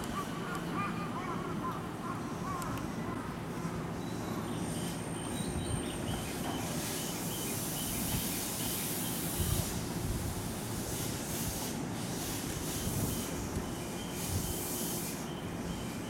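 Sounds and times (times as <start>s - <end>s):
wind buffeting the microphone: 9.3s - 10.7s, 12.6s - 14.6s.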